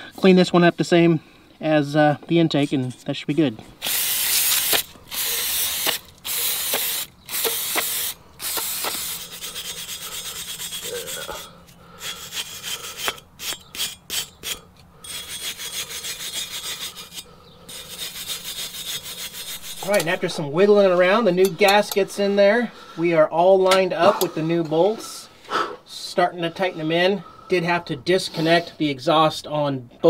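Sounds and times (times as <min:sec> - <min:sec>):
hand brush scrubbing metal: 0:03.4 - 0:22.6
aerosol spray hissing: 0:03.8 - 0:11.2.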